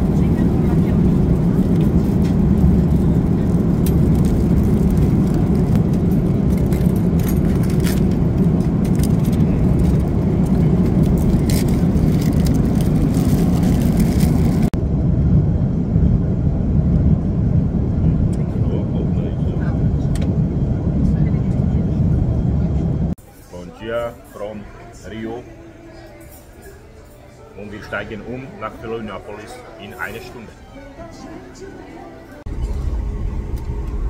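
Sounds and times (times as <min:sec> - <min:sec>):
moving vehicle rumble: 0:00.0 - 0:23.2, 0:32.4 - 0:34.0.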